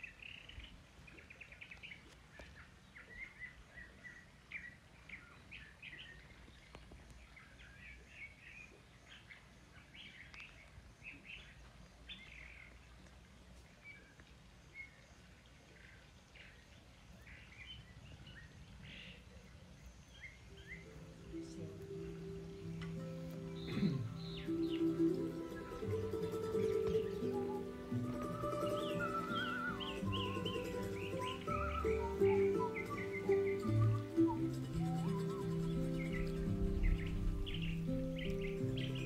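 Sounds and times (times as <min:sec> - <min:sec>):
birds chirping: 0:00.0 - 0:39.0
low background rumble: 0:33.8 - 0:39.0.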